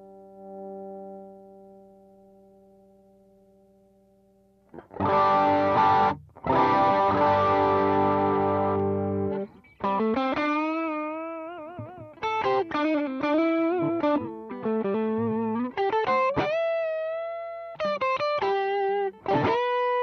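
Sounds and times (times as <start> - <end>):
overdriven electric guitar lead: 4.7 - 20.0.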